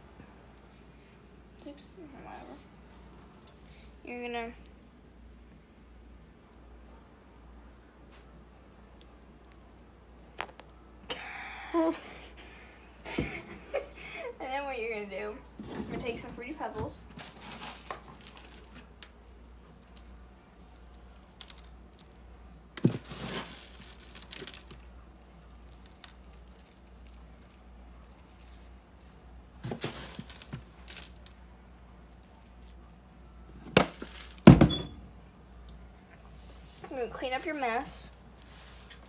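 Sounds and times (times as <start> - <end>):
cereal rattling: 17.1 - 22.2, 22.8 - 33.0, 33.7 - 34.6.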